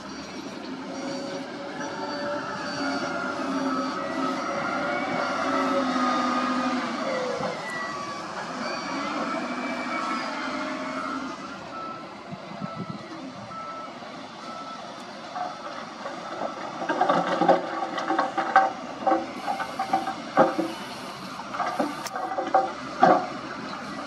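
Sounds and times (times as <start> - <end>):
reversing alarm beeping: 0.0 - 17.4
diesel engines running under load: 0.0 - 24.0.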